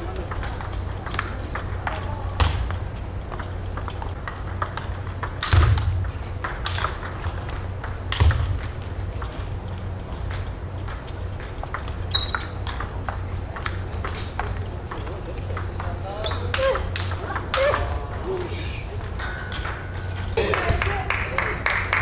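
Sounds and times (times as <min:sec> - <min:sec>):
steady low hum: 0:00.0 - 0:22.0
table tennis balls clicking: 0:00.0 - 0:22.0
short high squeaks: 0:08.6 - 0:09.1, 0:12.1 - 0:12.6.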